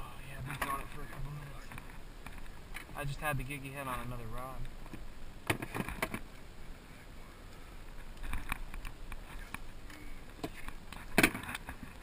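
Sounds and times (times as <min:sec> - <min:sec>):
knocks and clatter in a boat: 0:04.9 - 0:06.2, 0:10.4 - 0:12.0.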